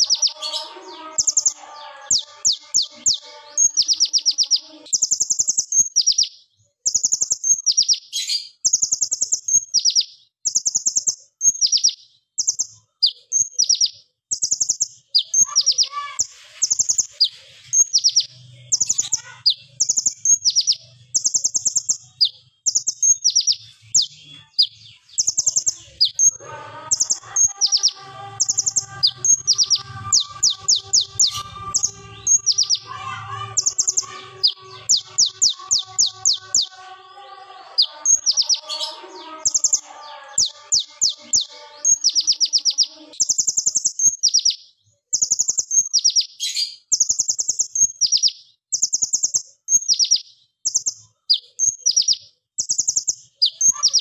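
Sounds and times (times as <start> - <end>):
faint low bird warbling: 23.3 - 36.8.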